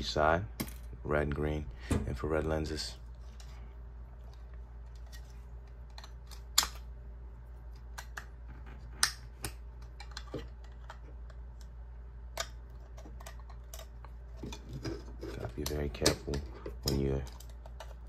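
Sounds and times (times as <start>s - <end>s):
plastic pieces clicking and snapping: 4.8s - 6.9s, 7.7s - 11.7s.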